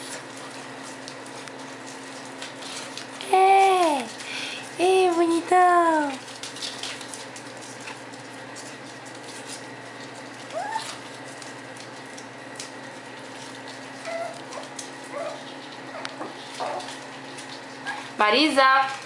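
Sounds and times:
puppies rustling on newspaper: 0:00.0 - 0:19.0
puppy whimpering: 0:10.4 - 0:11.2, 0:13.9 - 0:17.2
faint puppy whines: 0:10.5 - 0:11.0, 0:14.0 - 0:17.0.

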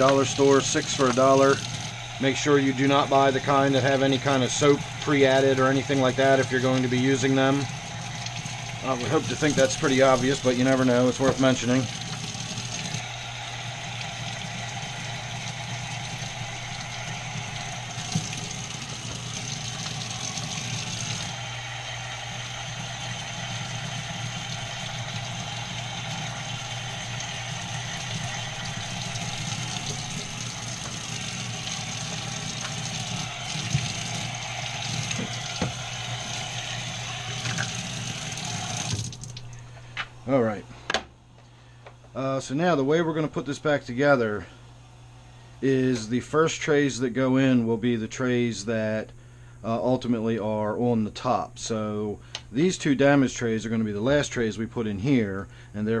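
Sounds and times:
tap water running: 0:00.0 - 0:40.0.

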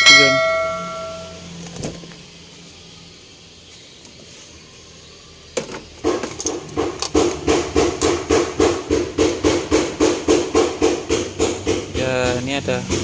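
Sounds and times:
steady hammering: 0:06.0 - 0:13.0.

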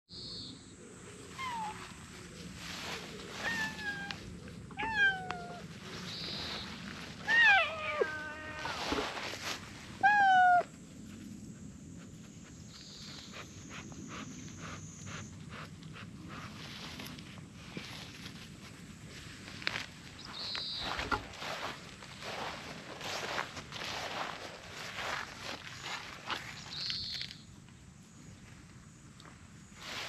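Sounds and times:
cat meowing: 0:03.4 - 0:04.2, 0:04.8 - 0:05.6, 0:07.2 - 0:08.9, 0:10.0 - 0:10.7.

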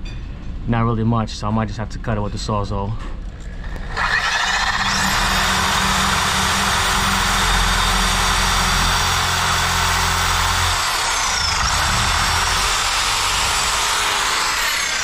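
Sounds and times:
reciprocating saw cutting pipe: 0:03.6 - 0:15.0.

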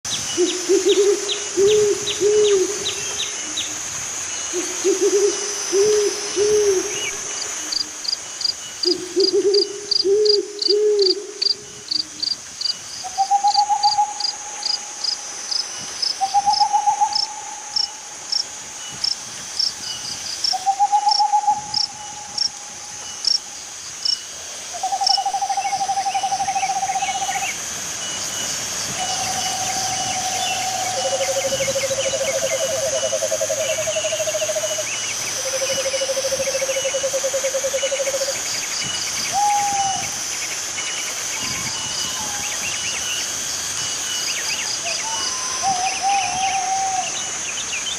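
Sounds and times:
crickets chirping: 0:00.1 - 0:47.9
owl hooting: 0:04.5 - 0:08.0, 0:08.8 - 0:12.2, 0:16.2 - 0:18.2, 0:39.3 - 0:40.2, 0:44.9 - 0:47.3.

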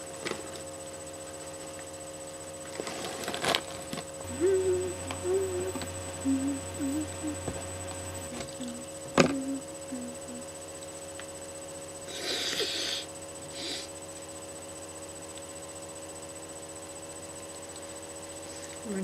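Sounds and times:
person sniffing: 0:12.1 - 0:14.0.

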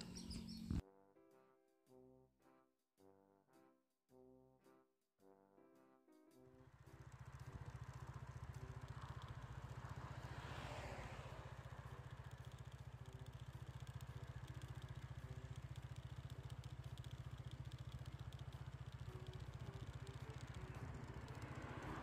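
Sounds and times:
motorcycle engine idling: 0:00.0 - 0:00.8, 0:06.7 - 0:22.0.

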